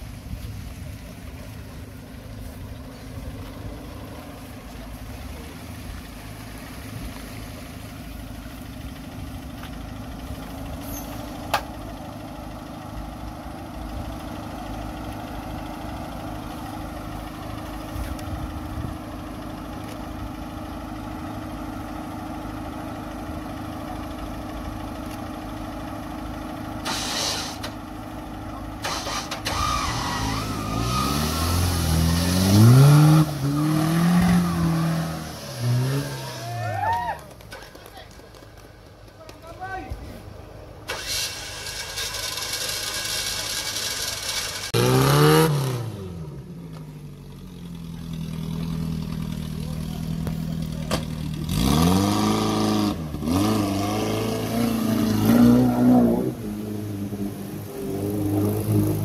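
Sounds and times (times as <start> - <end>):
car engine idling: 0.0 - 44.8, 45.6 - 59.0
hissing bursts: 26.8 - 27.7.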